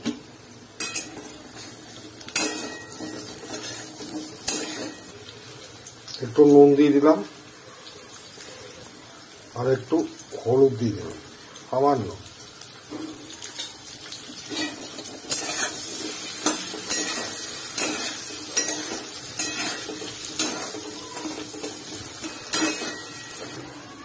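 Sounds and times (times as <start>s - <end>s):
potatoes sizzling in oil: 0.0s - 24.0s
metal spatula scraping pan: 0.8s - 5.1s, 14.4s - 23.6s.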